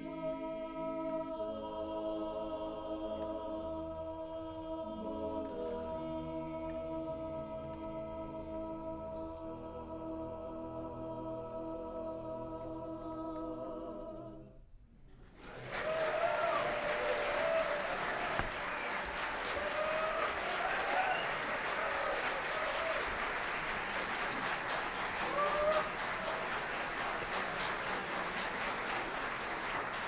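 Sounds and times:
audience applause: 15.4 - 30.0
whoops and cheers: 15.5 - 23.7, 25.0 - 26.6.

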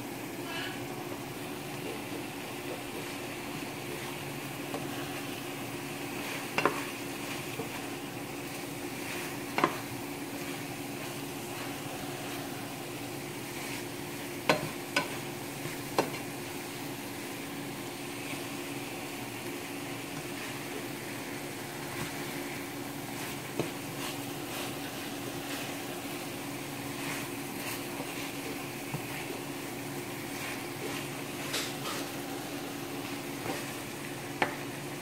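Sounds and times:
chicken wings sizzling in a pan: 0.0 - 35.0
tongs clacking against pan: 14.4 - 15.3, 31.4 - 32.1.

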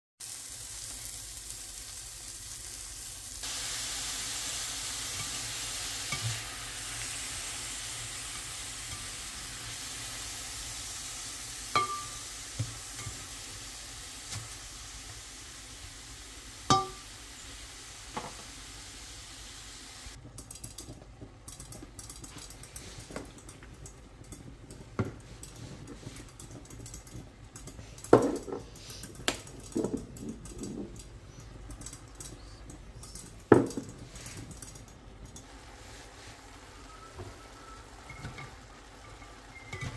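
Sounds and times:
onion and beef sizzling in pan: 0.2 - 20.2, 35.4 - 39.9
utensil clinking on pan: 11.7 - 12.3, 16.7 - 17.1.

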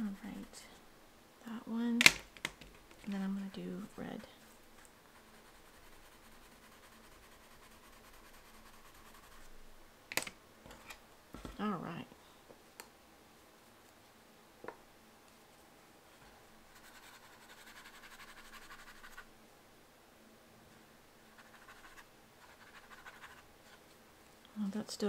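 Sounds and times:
wet paintbrush scrubbing paper: 4.2 - 9.6, 16.7 - 19.3, 21.4 - 23.8.

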